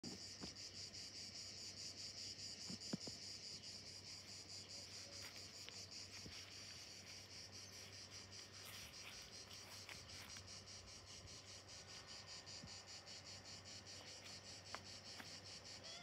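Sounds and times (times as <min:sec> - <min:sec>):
insect chorus chirring: 0:00.0 - 0:16.0
soft footsteps: 0:04.3 - 0:11.4.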